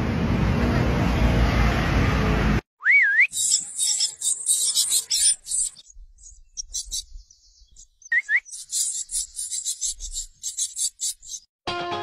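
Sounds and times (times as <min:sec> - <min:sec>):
parrot chicks chattering: 0:03.3 - 0:11.5.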